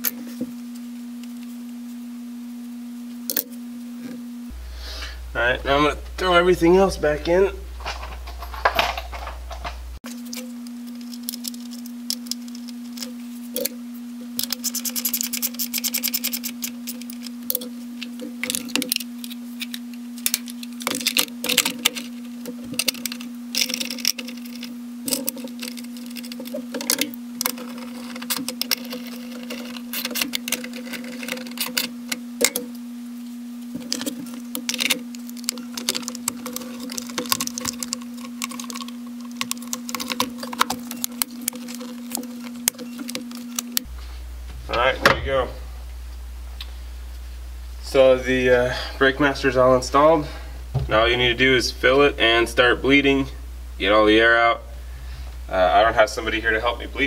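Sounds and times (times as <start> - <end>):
steady low hum: 0.0 - 57.0
plastic and metal parts rattling: 19.6 - 32.6, 33.8 - 43.8.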